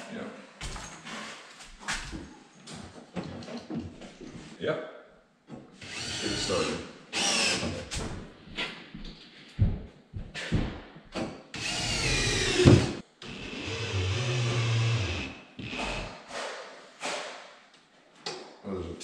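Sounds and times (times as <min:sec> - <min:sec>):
cordless drill driving screws: 0:05.8 - 0:07.8, 0:11.6 - 0:16.0.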